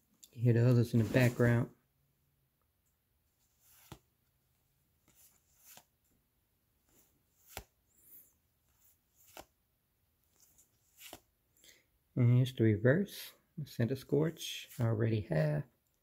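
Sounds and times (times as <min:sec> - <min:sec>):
trading cards sliding across a stack: 0:00.9 - 0:01.6, 0:03.5 - 0:04.0, 0:05.1 - 0:05.9, 0:06.9 - 0:09.5, 0:10.3 - 0:11.2.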